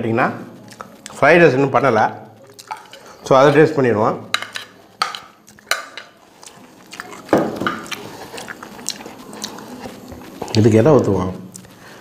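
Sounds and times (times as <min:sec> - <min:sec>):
spoon clinking on ceramic plates: 0:04.3 - 0:06.2, 0:07.3 - 0:08.0.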